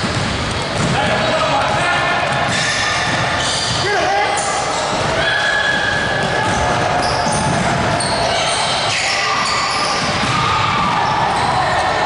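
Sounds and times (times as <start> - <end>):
gym hall noise: 0.0 - 12.0
sneakers squeaking on gym floor: 2.3 - 11.7
basketball dribbling: 4.9 - 8.8, 9.4 - 11.5.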